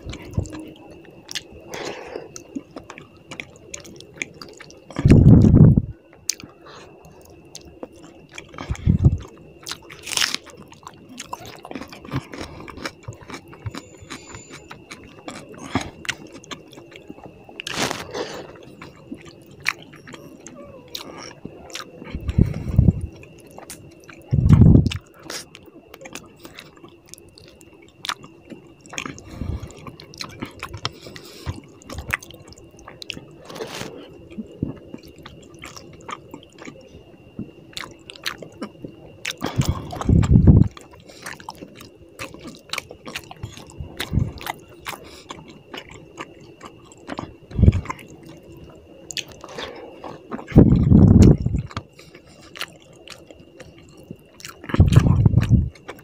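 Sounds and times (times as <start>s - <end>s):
chewing: 0.0s - 56.0s.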